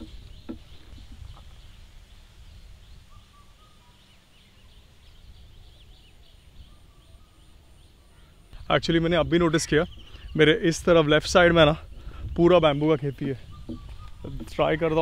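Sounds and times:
wind on microphone: 0.0 - 3.2, 9.3 - 15.0
distant small birds chirping: 0.0 - 15.0.

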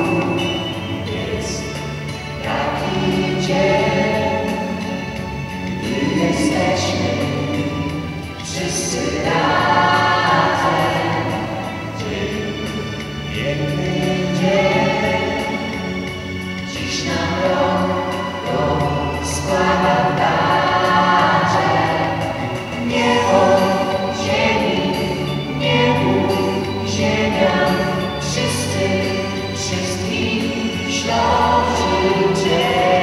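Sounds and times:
vocal group singing a carol: 0.0 - 33.0.

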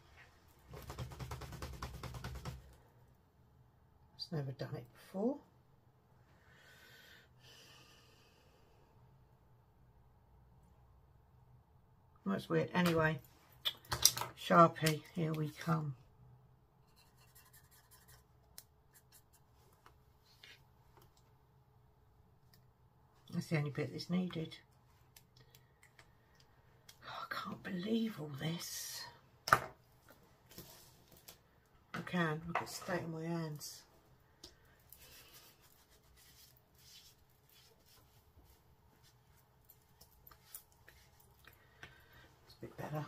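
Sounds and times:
marker scratching on card: 17.0 - 18.2
hands rubbing: 34.9 - 39.2, 39.9 - 41.4.

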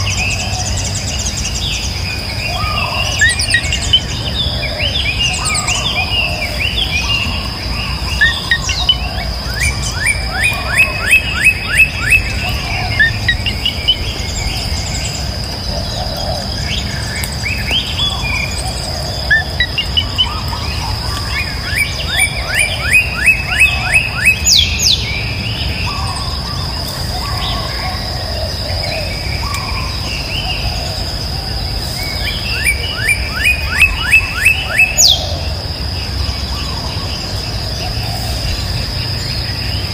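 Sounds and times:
birds chirping: 0.0 - 39.9.

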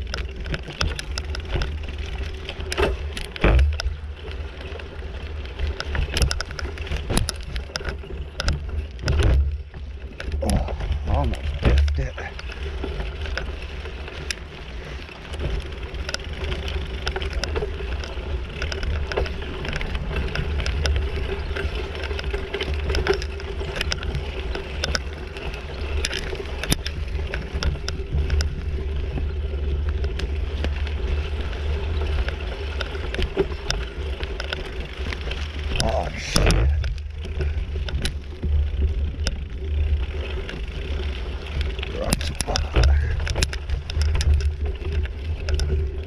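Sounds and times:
bicycle tyres on dirt trail: 0.0 - 46.0
small clicks and rattles: 0.0 - 46.0
low rumble: 9.2 - 12.9, 35.5 - 40.1.

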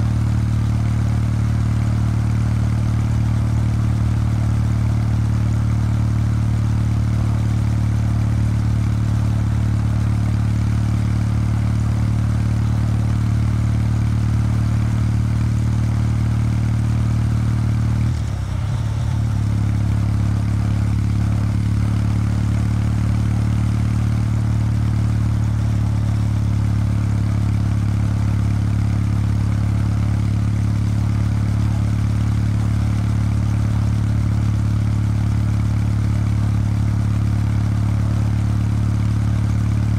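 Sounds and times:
motorcycle engine cruising: 16.2 - 30.3.

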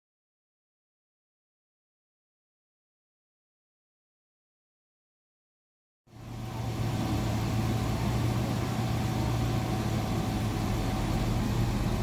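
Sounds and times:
diesel engine running: 6.1 - 12.0.

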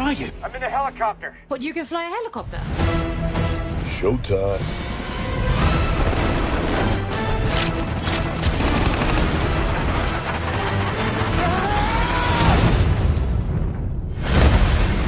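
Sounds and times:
dramatic music: 0.0 - 15.0
gunfire bursts: 8.4 - 11.4.

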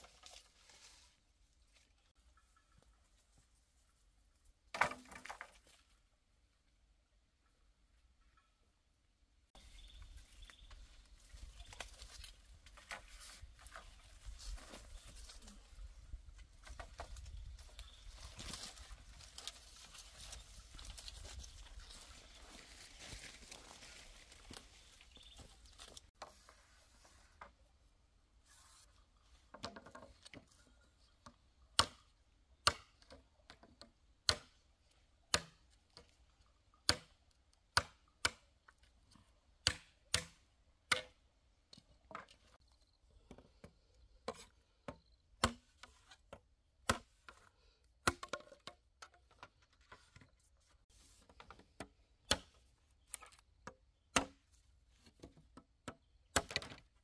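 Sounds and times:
blade chopping wood: 46.8 - 47.2, 48.0 - 48.6, 54.1 - 54.4.

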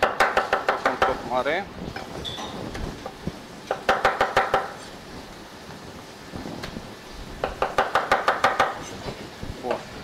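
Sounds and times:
knife chopping on cutting board: 0.0 - 1.2, 3.7 - 4.8, 7.4 - 8.8.

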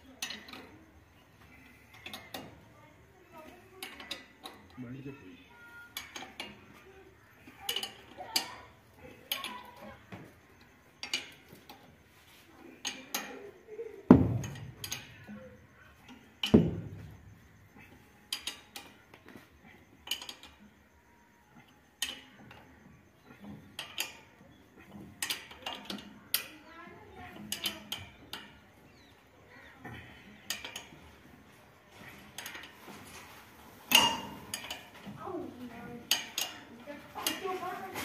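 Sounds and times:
spanners clinking on bolts: 14.2 - 20.8, 32.0 - 35.2.

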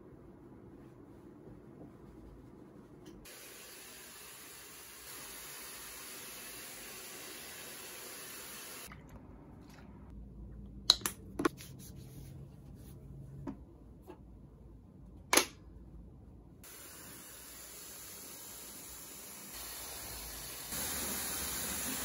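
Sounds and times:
hair dryer blowing: 16.7 - 22.0.

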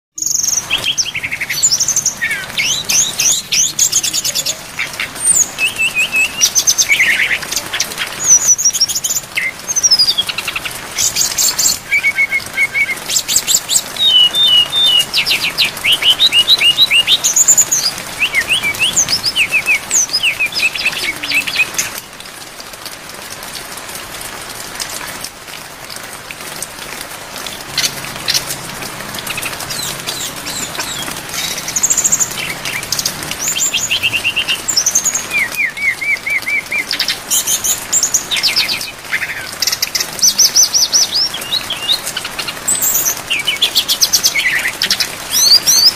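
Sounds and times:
rain hiss: 0.2 - 45.9
bird singing whistles and trills: 5.2 - 7.5, 11.0 - 21.9, 29.3 - 42.0, 42.7 - 45.9.

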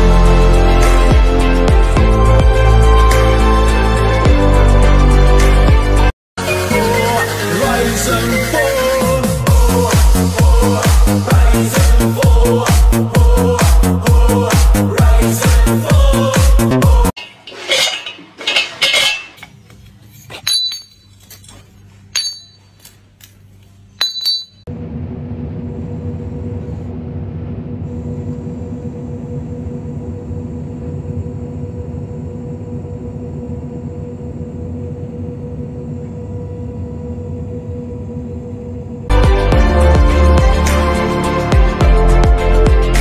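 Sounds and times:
charcoal clinking in metal bucket: 17.2 - 19.6.

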